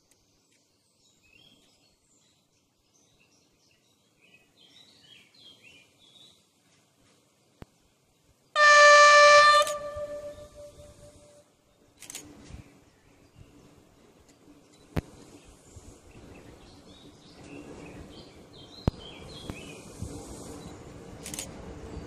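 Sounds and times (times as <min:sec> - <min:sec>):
train horn blast: 0:08.6 - 0:11.4.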